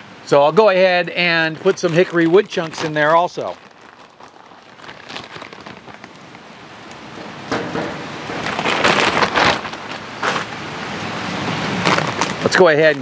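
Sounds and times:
bag rustling: 1.2 - 6.5, 8.2 - 10.6, 11.7 - 13.0
wood chips pattering into pan: 1.3 - 6.4.

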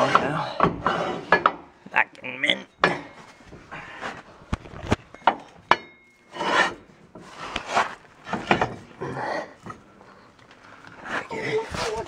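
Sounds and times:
rasping scrapes against metal: 0.0 - 1.6, 6.2 - 8.8
sharp metallic clinks: 5.1 - 6.3.

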